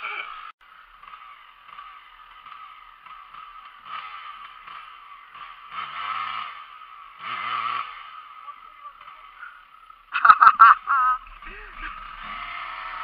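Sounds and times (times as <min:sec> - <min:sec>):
dirt bike engine revving: 0:00.0 - 0:13.0
wheel spinning in mud: 0:09.2 - 0:13.0.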